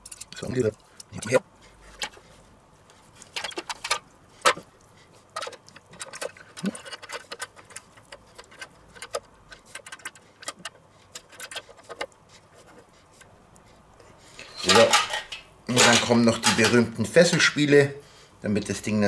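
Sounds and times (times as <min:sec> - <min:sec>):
metallic clicks and clinks: 0:00.0 - 0:01.2.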